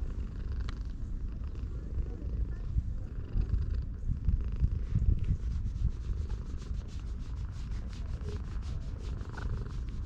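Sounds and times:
hand scratching cat fur: 5.2 - 10.0
cat purring: 8.0 - 10.0.

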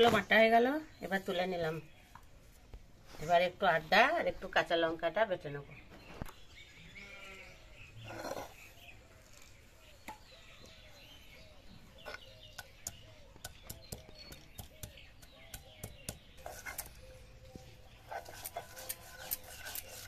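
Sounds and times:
faint chirping calls: 5.5 - 20.0.

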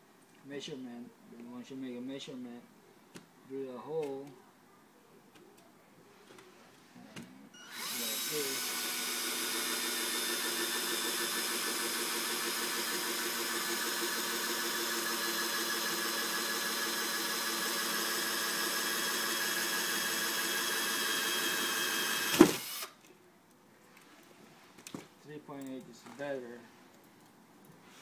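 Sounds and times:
cordless drill boring wood: 7.6 - 23.0.

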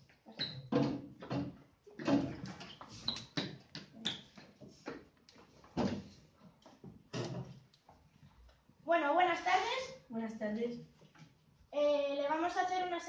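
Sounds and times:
chairs knocking and scraping on floor: 0.0 - 8.1
chair squeaks: 0.3 - 4.6.

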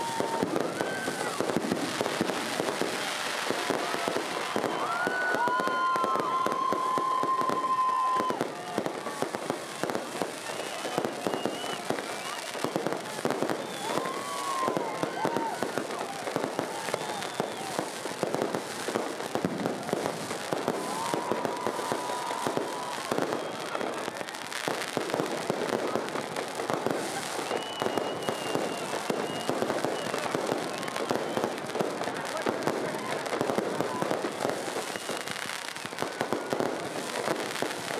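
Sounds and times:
fireworks bangs and crackles: 0.0 - 37.9
short whistling tones: 10.4 - 12.8, 16.8 - 17.8, 27.4 - 31.6, 34.9 - 35.3.

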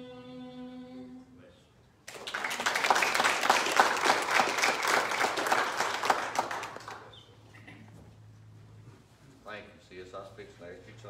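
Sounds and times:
congregation applauding: 2.1 - 7.1.

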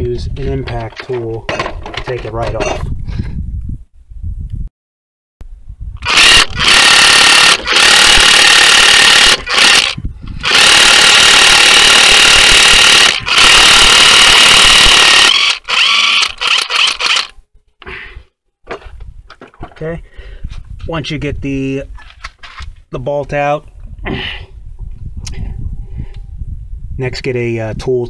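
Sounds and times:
impact wrench hammering: 10.5 - 17.3.

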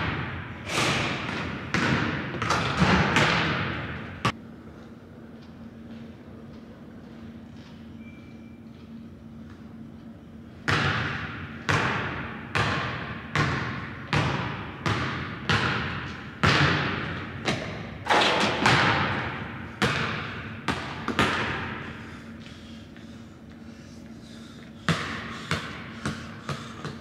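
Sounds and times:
basketball bouncing on wooden floor: 1.2 - 4.2, 10.7 - 17.7, 18.6 - 21.7, 24.9 - 27.0.

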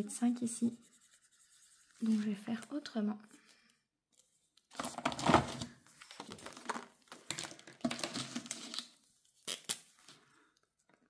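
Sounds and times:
plastic binder pocket crinkling: 4.6 - 10.2.

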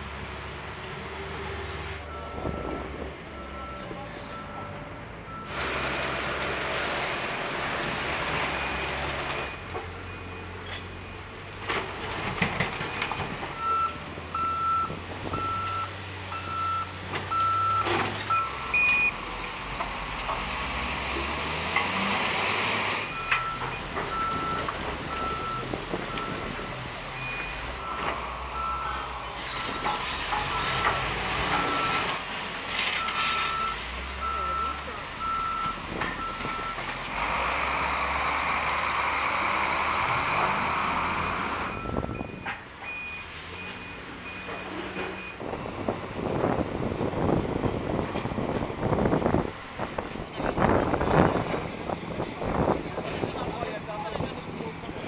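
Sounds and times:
heavy diesel machinery running: 0.0 - 55.0
reversing alarm beeping: 2.1 - 5.6, 12.9 - 19.2, 23.1 - 32.1, 33.0 - 36.8, 41.2 - 45.4.

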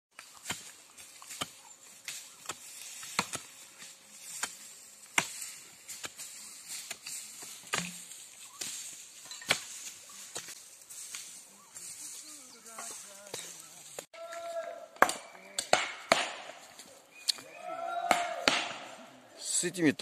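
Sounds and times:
machete chopping wood: 0.2 - 3.5, 4.4 - 6.2, 6.9 - 8.8, 15.0 - 16.7, 18.1 - 18.9.

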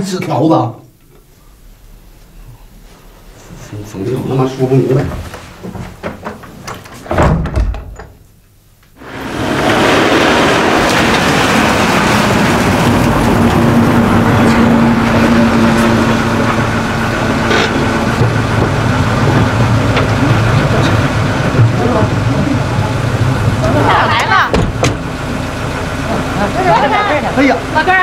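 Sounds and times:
door shutting with a thump: 5.0 - 8.2, 24.5 - 25.0
car engine hum: 9.0 - 28.0
tyres on dirt road: 9.0 - 28.0.

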